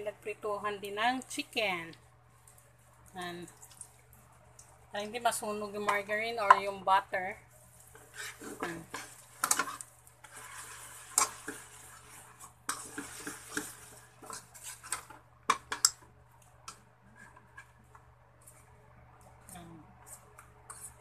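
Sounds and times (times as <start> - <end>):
faint sizzling fat: 0.7 - 21.0
metal spatula scraping a wok: 8.0 - 15.2.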